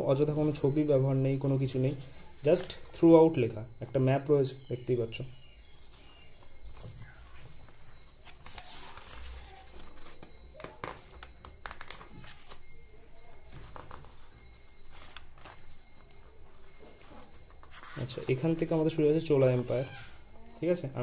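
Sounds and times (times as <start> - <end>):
book pages rustling: 5.8 - 12.6, 13.4 - 19.8.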